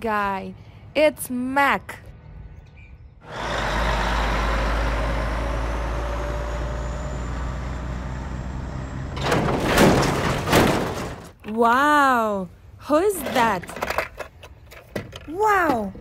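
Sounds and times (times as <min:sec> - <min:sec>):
truck engine and road rumble: 0:00.0 - 0:16.0
loud clattering noise: 0:09.2 - 0:11.4.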